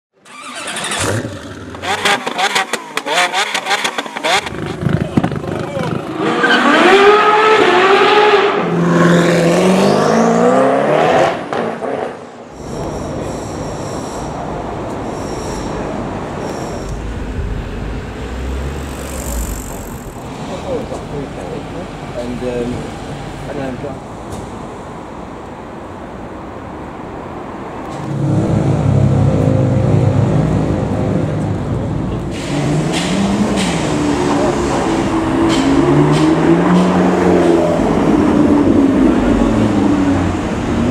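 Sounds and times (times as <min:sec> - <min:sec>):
street noise: 0:00.1 - 0:40.9
supercar engine revving: 0:00.3 - 0:12.0, 0:12.6 - 0:22.2
lower engine note climbing: 0:12.6 - 0:22.9.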